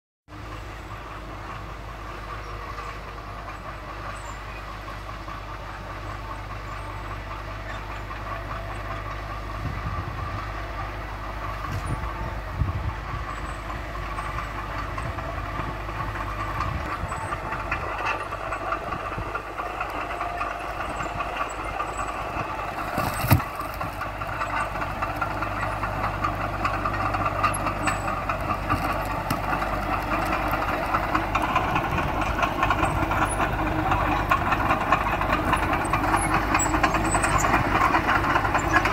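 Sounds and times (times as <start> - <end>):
bulldozer diesel engine under load: 0.3 - 38.9
steel tracks clattering: 10.2 - 38.9.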